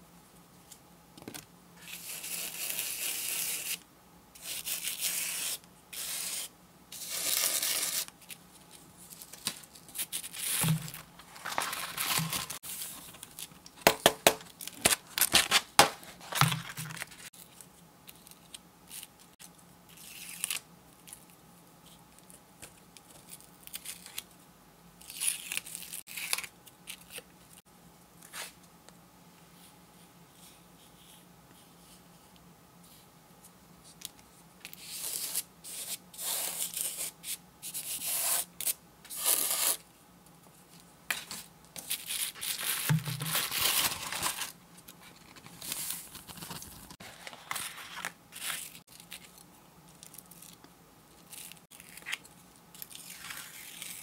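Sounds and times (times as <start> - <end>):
paper crackling: 7.2 - 13.6, 42.2 - 49.4.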